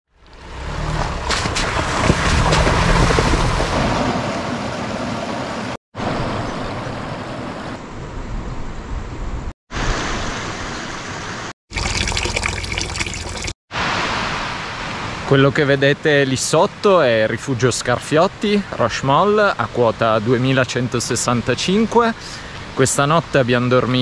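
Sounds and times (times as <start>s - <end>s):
water pouring into trough: 11.7s - 13.6s
stream rushing over stones: 11.7s - 15.3s.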